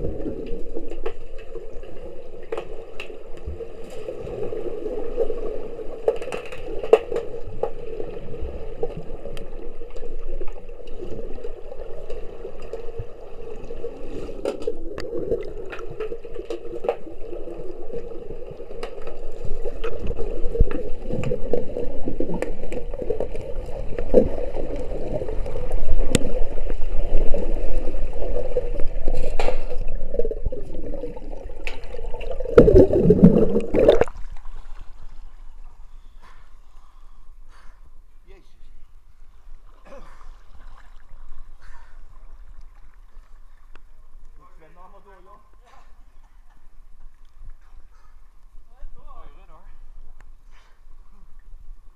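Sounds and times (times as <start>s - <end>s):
gurgling rush of water: 7.3s - 35.0s.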